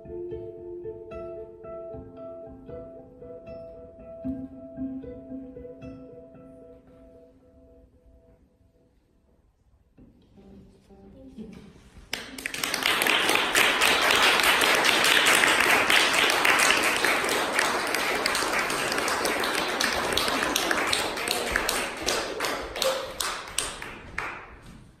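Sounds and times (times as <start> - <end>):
audience applauding: 12.1 - 24.6.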